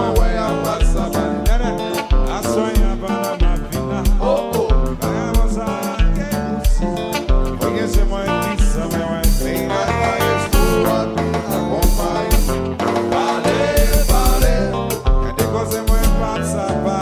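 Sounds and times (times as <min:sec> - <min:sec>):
guitar: 0:00.0 - 0:17.0
person singing: 0:00.0 - 0:17.0
kick drum pulse: 0:13.8 - 0:15.4.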